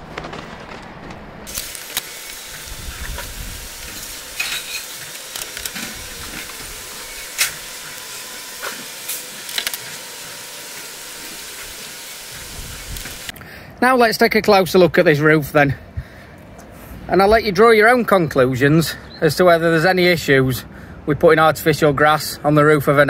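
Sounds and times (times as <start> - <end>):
wet sponge scrubbing metal: 1.5 - 13.3.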